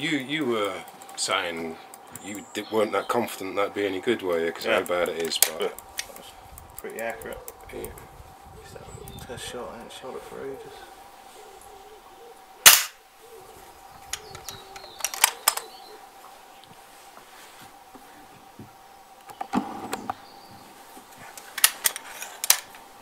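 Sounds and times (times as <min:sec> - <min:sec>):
air rifle shot crack: 0:12.6 - 0:13.0
rifle barrel clatter: 0:12.6 - 0:13.0, 0:14.1 - 0:15.7, 0:21.3 - 0:22.8.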